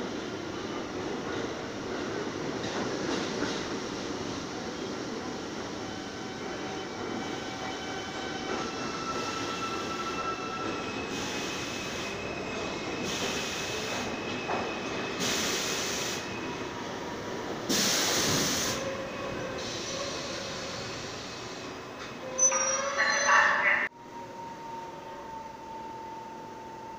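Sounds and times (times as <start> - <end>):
subway train rumbling: 0.0 - 26.9
brake hiss bursts: 17.7 - 18.8
wheel and brake squeal: 22.3 - 23.5.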